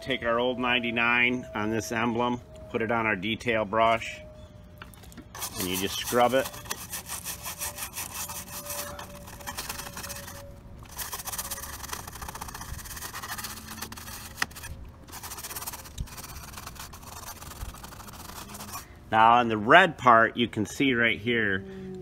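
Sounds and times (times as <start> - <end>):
brush scrubbing car emblem: 5.3 - 18.8.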